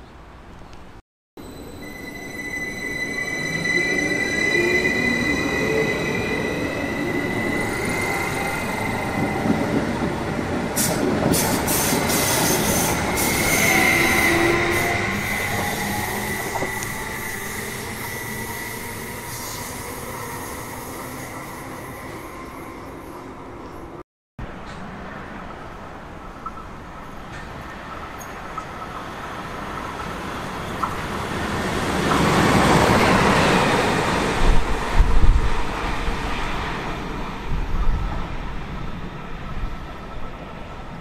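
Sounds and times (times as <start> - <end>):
train wheels squealing on rails: 1.4 - 24.0.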